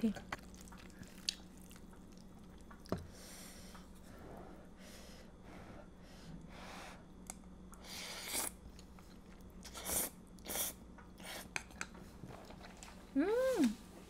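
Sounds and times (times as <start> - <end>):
chewing: 0.2 - 2.9
person slurping noodles: 7.8 - 8.6.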